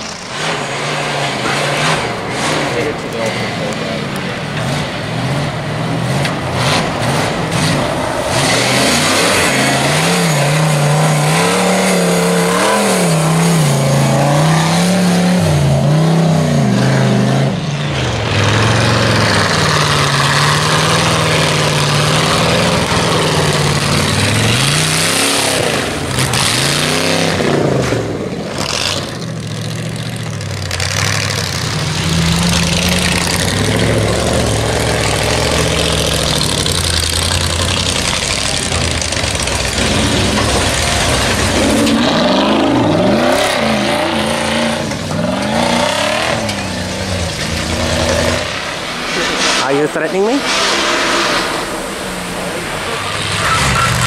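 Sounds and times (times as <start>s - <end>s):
engine revving: 0.0s - 54.0s.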